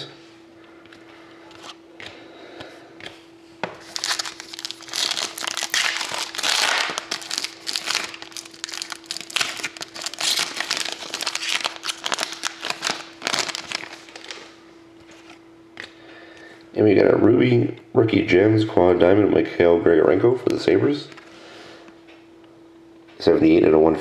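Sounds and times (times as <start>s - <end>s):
foil wrapper tearing and crinkling: 3.8s - 14.5s.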